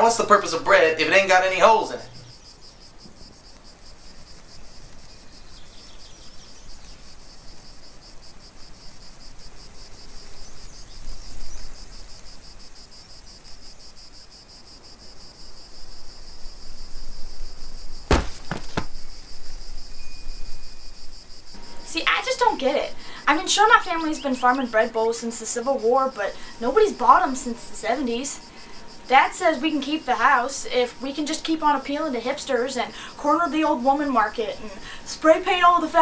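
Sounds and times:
insects chirring: 0.0 - 36.0
sharp knocks: 18.1 - 19.0.

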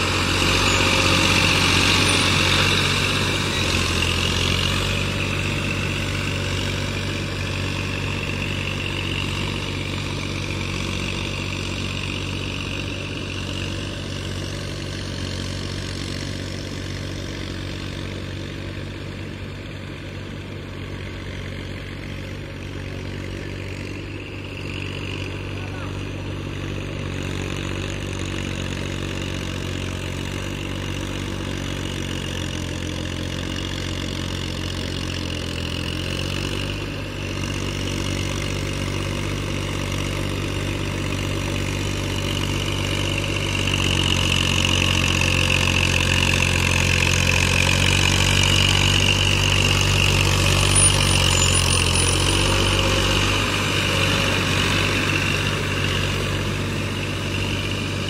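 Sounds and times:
diesel tractor engine running: 0.0 - 58.0.

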